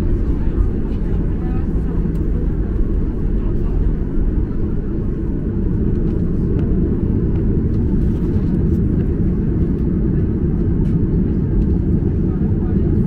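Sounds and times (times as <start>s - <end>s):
airplane cabin engine rumble: 0.0s - 13.0s
light clicks in cabin: 0.9s - 3.5s, 5.8s - 9.9s, 10.5s - 12.4s.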